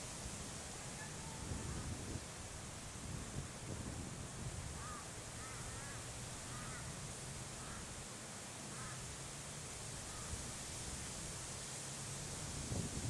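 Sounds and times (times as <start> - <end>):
wind noise on microphone: 0.0 - 5.0, 9.9 - 13.0.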